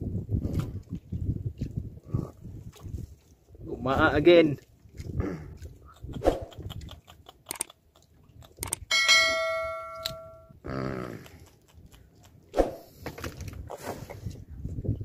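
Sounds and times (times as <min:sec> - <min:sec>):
fish handling clicks: 0:06.5 - 0:08.8, 0:10.0 - 0:10.2
metallic clang ringing: 0:08.9 - 0:10.5.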